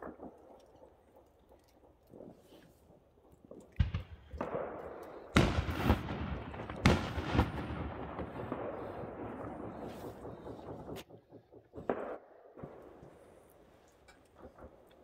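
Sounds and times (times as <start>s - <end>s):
fireworks exploding: 3.4s - 13.4s.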